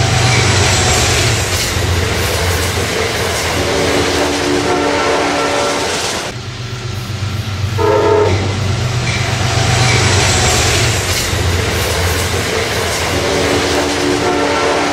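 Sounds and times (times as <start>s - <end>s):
train rumble and rail noise: 0.0s - 14.9s
train horn blasts: 3.7s - 6.3s, 7.8s - 8.7s, 13.6s - 14.9s.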